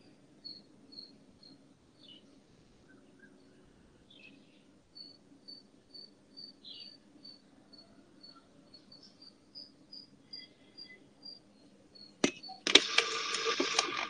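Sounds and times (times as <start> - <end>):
cricket chirping: 0.4 - 1.6, 5.0 - 12.7.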